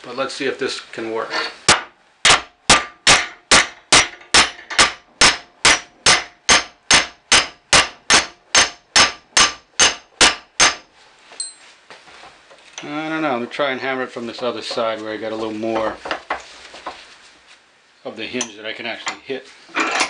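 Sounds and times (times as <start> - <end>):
hammer clanging on metal: 1.7 - 11.6.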